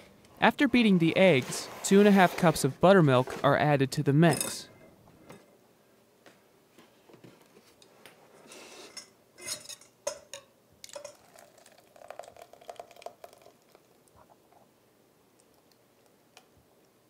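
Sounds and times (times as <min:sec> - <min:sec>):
glass cup clinking on metal bowl: 0:09.5 - 0:13.5
liquid pouring: 0:10.8 - 0:14.1.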